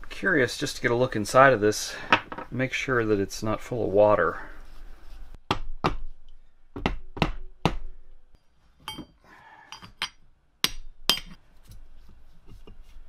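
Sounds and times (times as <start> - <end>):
metal knocks and clinks: 8.8 - 10.2.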